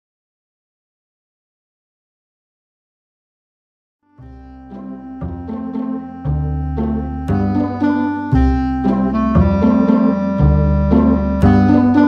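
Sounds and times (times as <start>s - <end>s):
bass line: 4.2s - 12.0s
held synth notes: 4.2s - 12.0s.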